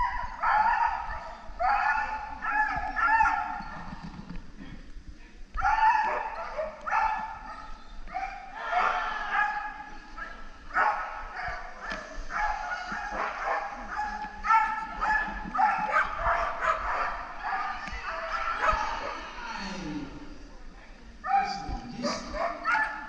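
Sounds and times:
dog barking and yipping: 0:00.0 - 0:03.8, 0:10.7 - 0:19.2, 0:21.3 - 0:23.0.

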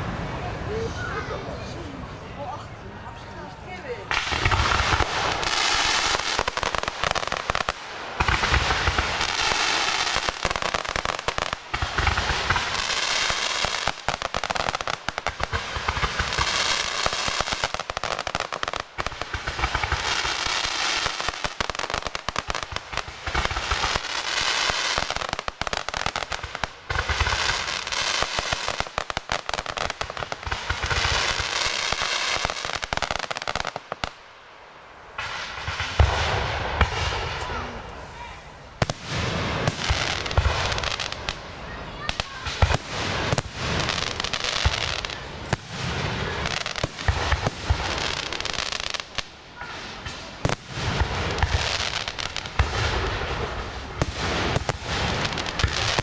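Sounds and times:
firework crackling: 0:00.0 - 0:56.0
firework shots thumping: 0:38.8 - 0:41.4.

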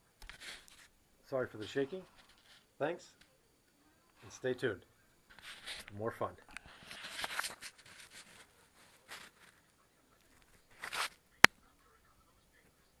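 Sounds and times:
camera handling rustles: 0:06.6 - 0:08.3, 0:10.7 - 0:11.2.

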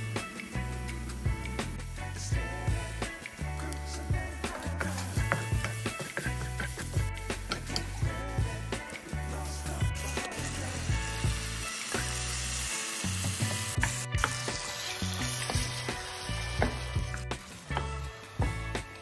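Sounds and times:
paste sizzling in a frying pan: 0:00.0 - 0:19.0
wooden spatula scraping a pan: 0:04.9 - 0:07.1.

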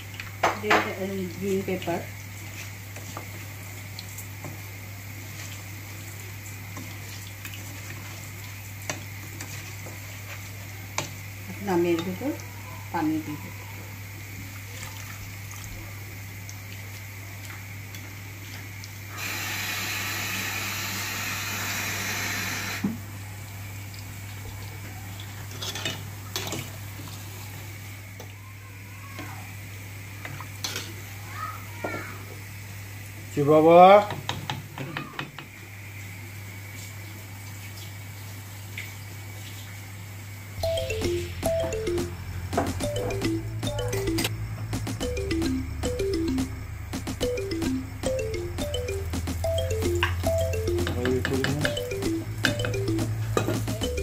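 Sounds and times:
food sizzling in a pot: 0:00.3 - 0:23.0, 0:25.2 - 0:28.4
low steady hum: 0:40.6 - 0:54.0.

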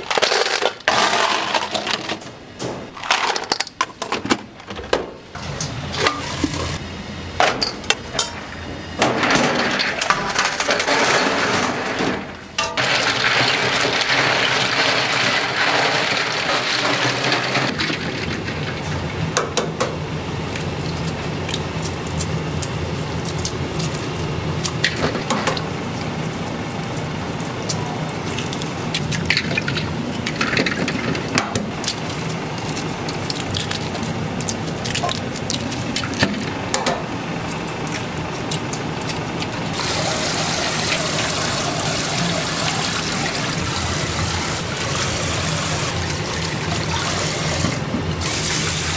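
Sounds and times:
eggshells crackling being peeled: 0:26.0 - 0:30.3, 0:31.8 - 0:36.2
tap water running and splashing: 0:39.7 - 0:48.9.

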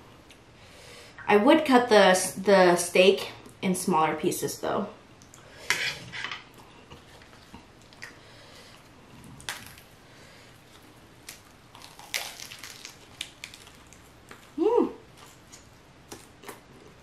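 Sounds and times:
crunchy bite: 0:09.2 - 0:09.9, 0:10.7 - 0:14.6
lettuce leaves crackling: 0:10.6 - 0:16.6.

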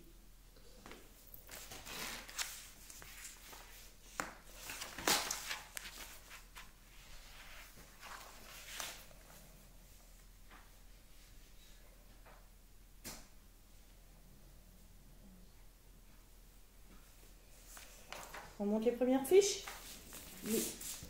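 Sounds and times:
paper pages rustling: 0:01.5 - 0:09.4, 0:17.6 - 0:18.6, 0:19.6 - 0:21.0.

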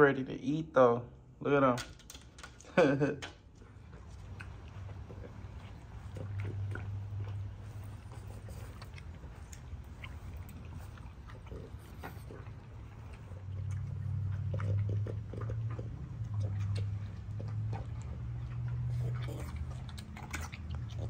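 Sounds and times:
low steady hum: 0:00.0 - 0:21.0
dogs crunching dry kibble: 0:01.9 - 0:21.0.

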